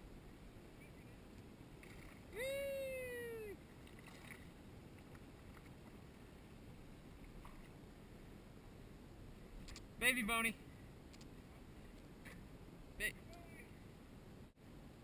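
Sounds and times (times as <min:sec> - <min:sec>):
high wordless vocal cry: 0:02.4 - 0:03.6.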